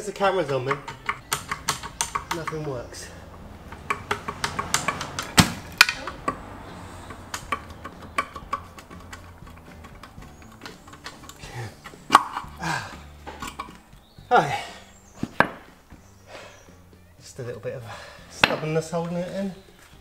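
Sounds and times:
metal knocks and clicks: 0.4 - 12.6, 13.2 - 13.8.

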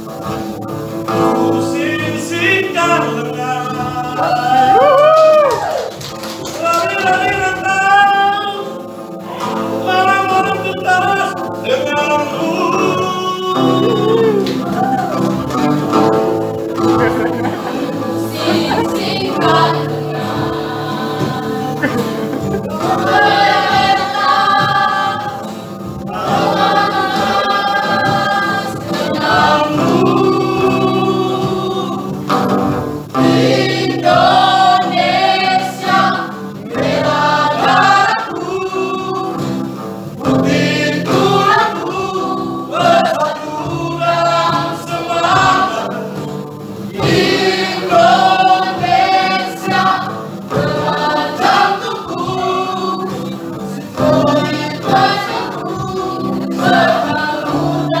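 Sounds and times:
mixed choir singing: 0.0 - 58.0.

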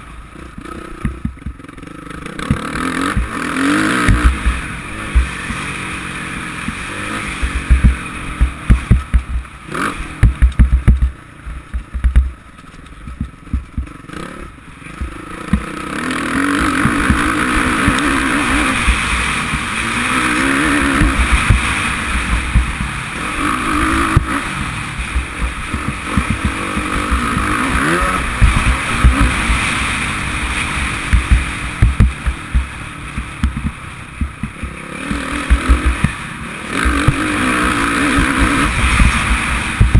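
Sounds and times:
motocross bike engine revving: 0.0 - 39.9
low thumps on microphone: 1.0 - 1.6, 7.4 - 9.5, 10.2 - 12.4, 13.0 - 14.0, 22.3 - 23.0, 25.1 - 29.6, 31.1 - 34.8, 35.4 - 36.2, 38.9 - 39.9.

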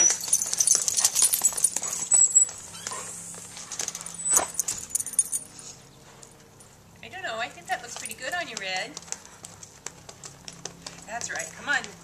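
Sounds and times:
dog paws clattering on concrete: 0.0 - 12.0.

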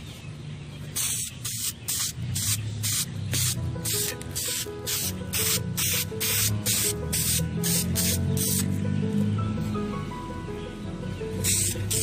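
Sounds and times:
spray paint can hissing: 0.9 - 8.7, 11.4 - 12.0
background music: 2.4 - 12.0.

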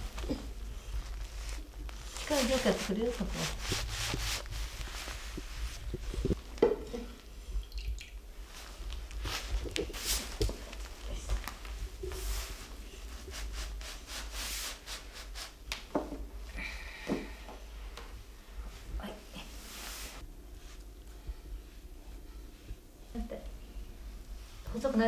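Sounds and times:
brush swishing across paper: 0.0 - 6.4, 8.4 - 15.6, 18.6 - 23.6
brush tapping paper: 0.2 - 6.8, 8.9 - 16.1.

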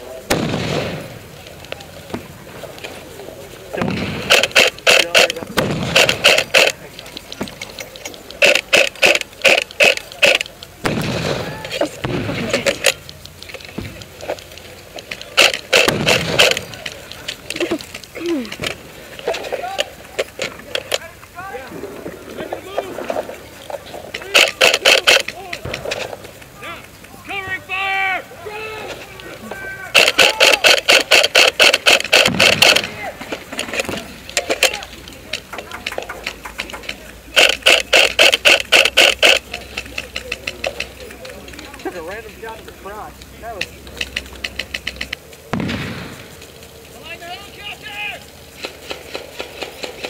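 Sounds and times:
airsoft gun firing rapid shots: 3.8 - 6.8, 8.4 - 13.0, 15.3 - 16.9, 24.2 - 25.3, 29.9 - 33.1, 37.3 - 39.5, 48.6 - 50.0.

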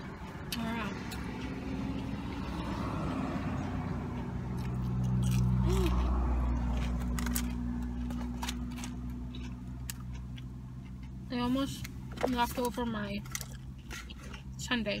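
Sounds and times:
chewing crisp chicken: 0.2 - 11.9.

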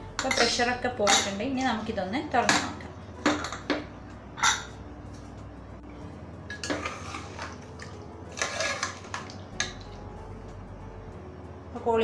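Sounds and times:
spoon clinking on metal pot: 0.1 - 1.4
spoon stirring thick curry: 6.6 - 9.9.

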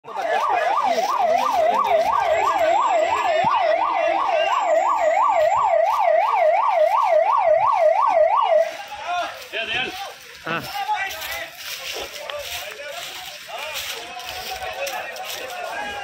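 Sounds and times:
emergency siren yelping: 0.0 - 9.0.

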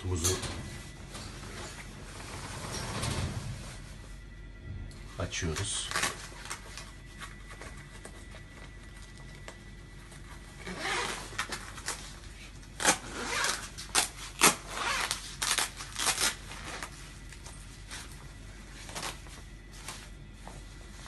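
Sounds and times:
fabric rustling: 0.6 - 4.4, 9.8 - 21.0
jacket zipper rasping: 10.6 - 11.5, 12.8 - 16.8.

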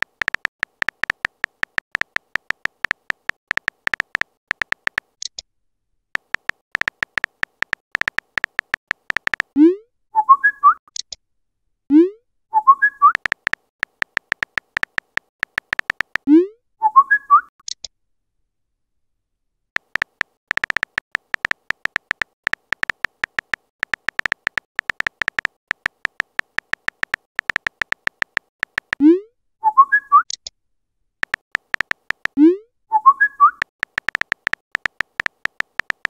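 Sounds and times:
keyboard tap clicks: 0.0 - 5.1, 6.2 - 9.6, 13.1 - 16.3, 19.8 - 29.0, 31.2 - 32.4, 33.6 - 36.0.

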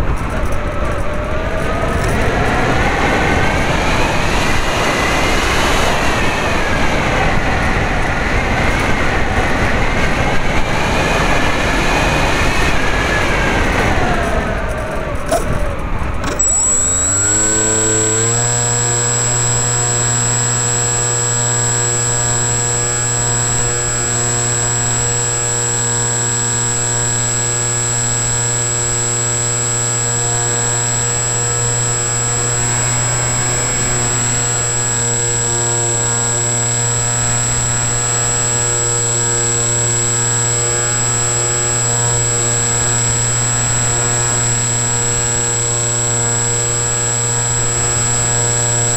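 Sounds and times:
electric motor and propeller drone: 0.0 - 48.9
high whine: 16.2 - 48.9.

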